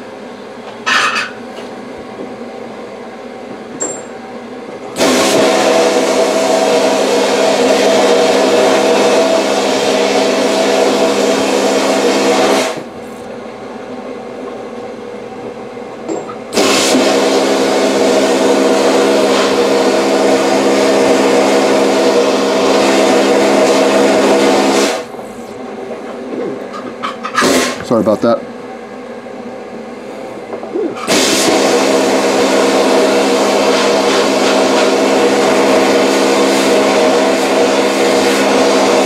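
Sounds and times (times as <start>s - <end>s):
blasting gun hissing rush: 5.0s - 8.1s, 31.1s - 39.0s.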